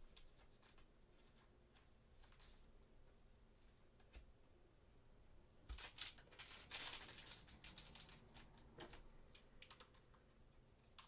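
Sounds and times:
plastic wrapper crinkling: 0:05.7 - 0:10.0.

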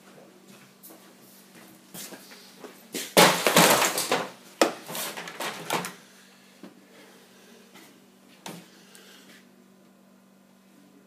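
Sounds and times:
faint steady hum: 0:00.0 - 0:11.0
cables rustling and crackling: 0:03.4 - 0:06.0.

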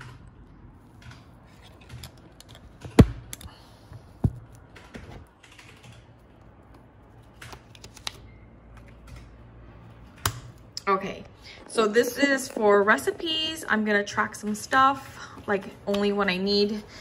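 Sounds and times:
paper pages rustling: 0:06.7 - 0:08.2.

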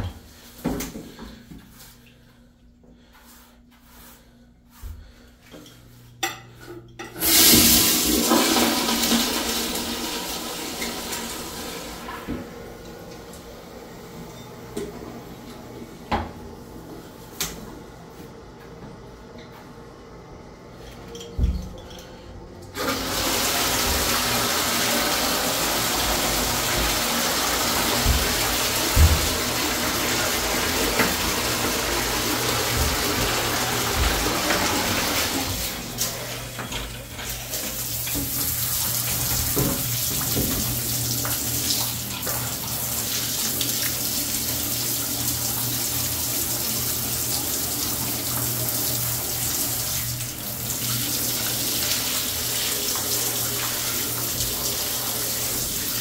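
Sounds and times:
water running into a bathtub: 0:07.1 - 0:13.9, 0:21.4 - 0:56.0.

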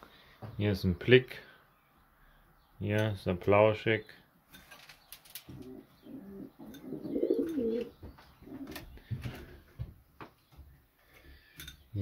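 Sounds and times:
pigeons cooing: 0:05.4 - 0:09.7.

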